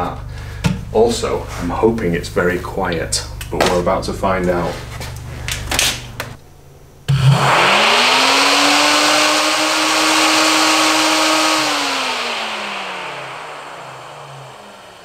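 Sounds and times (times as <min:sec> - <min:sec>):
electric fan motor humming: 0:00.0 - 0:15.0
rush of air from fan: 0:07.2 - 0:15.0.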